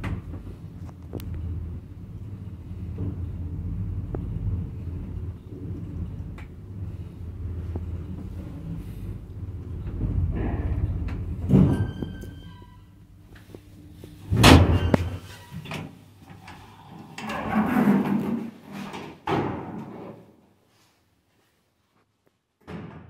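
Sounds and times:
lift door banging: 0:09.8 - 0:12.7, 0:14.3 - 0:15.3
lift door rattling slide: 0:14.2 - 0:20.2.

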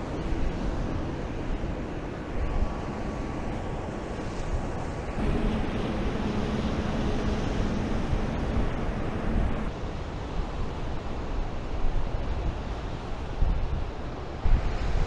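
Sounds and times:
low steady hum: 0:00.0 - 0:09.8
wind on microphone: 0:00.0 - 0:15.0
surf breaking on beach: 0:01.1 - 0:10.0.

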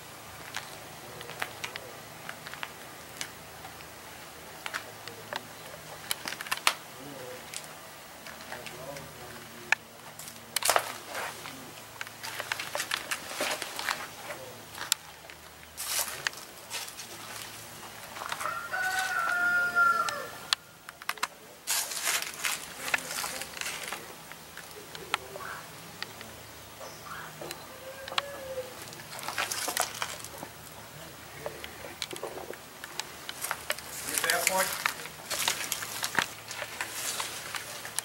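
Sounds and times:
sharp clicks and ticks: 0:09.7 - 0:10.9, 0:31.4 - 0:38.0
rooster crowing: 0:18.2 - 0:20.7, 0:27.2 - 0:28.8.

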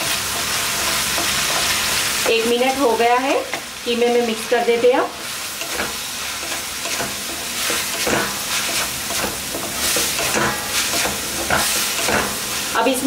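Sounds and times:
spatula scraping in a pan: 0:00.0 - 0:02.6, 0:05.2 - 0:12.8
oil sizzling: 0:00.0 - 0:13.0.

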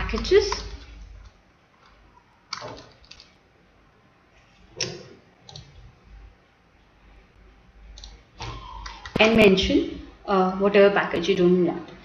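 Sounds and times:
keyboard and mouse clicks: 0:00.0 - 0:03.4, 0:04.8 - 0:05.8, 0:07.9 - 0:08.2.

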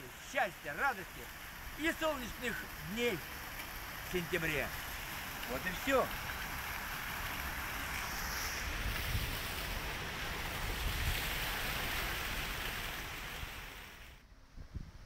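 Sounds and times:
fountain water splashing: 0:00.0 - 0:14.2
wind gusting on microphone: 0:07.6 - 0:13.6, 0:14.4 - 0:15.0.

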